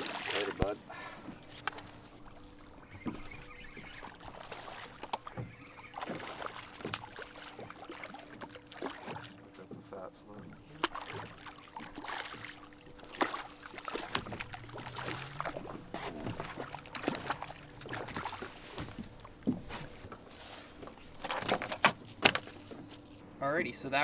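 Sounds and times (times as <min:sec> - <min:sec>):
water lapping against boat hull: 0:00.0 - 0:23.2
faint steady hum: 0:00.0 - 0:24.0
knocks and clatter on board: 0:13.9 - 0:23.2.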